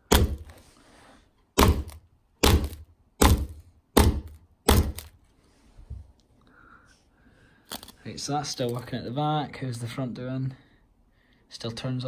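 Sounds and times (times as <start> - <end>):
hammer striking phone glass: 0.0 - 0.5, 1.6 - 5.1.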